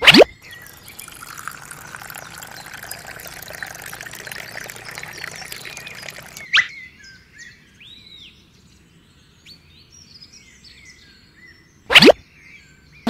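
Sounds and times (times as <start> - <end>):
faint birds chirping: 0.3 - 13.0.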